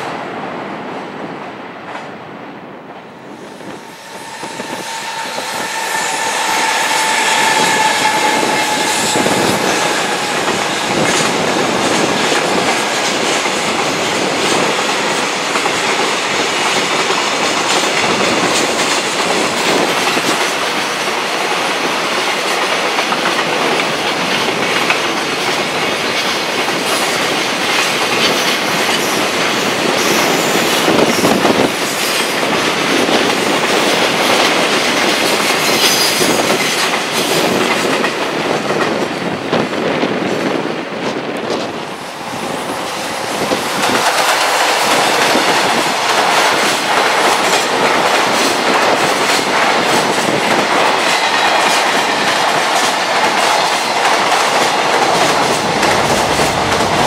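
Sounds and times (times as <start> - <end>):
freight train passing: 0.0 - 57.0
train whine: 0.0 - 57.0.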